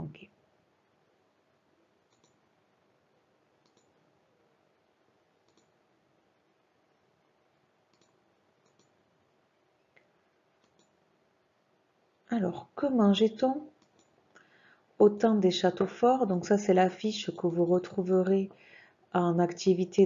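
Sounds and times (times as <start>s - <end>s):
faint computer mouse clicks: 2.1s - 2.4s, 3.6s - 3.9s, 5.4s - 5.7s, 7.9s - 9.0s, 10.0s - 11.0s, 13.8s - 14.5s.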